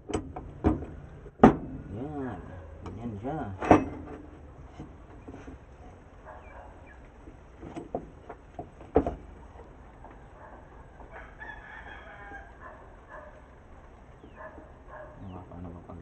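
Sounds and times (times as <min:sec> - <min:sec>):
metal clicks and knocks: 0:00.0 - 0:01.8, 0:03.6 - 0:05.6, 0:07.5 - 0:10.2
rooster crowing: 0:10.1 - 0:13.4.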